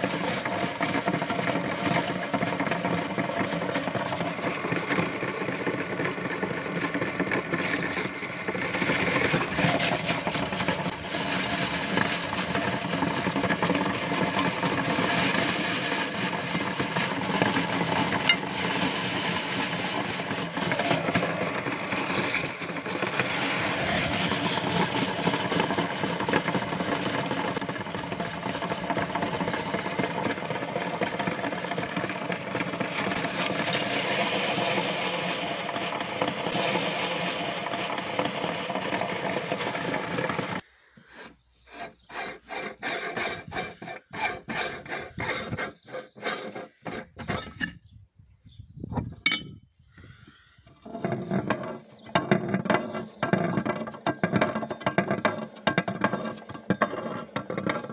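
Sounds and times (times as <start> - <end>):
meat grinder crushing pretzels: 0.0 - 40.7, 41.6 - 47.3, 50.7 - 57.9
metallic clinks and knocks: 49.2 - 49.6.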